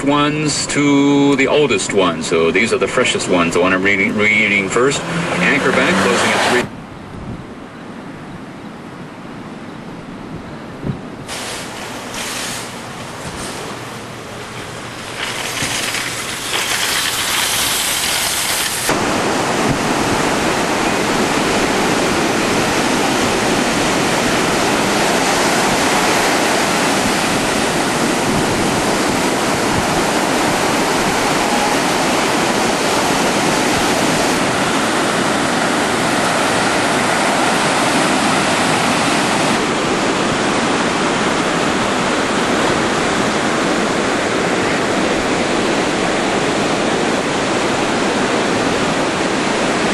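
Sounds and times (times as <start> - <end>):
howling wind: 6.6 - 49.9
surf breaking on beach: 11.3 - 49.9.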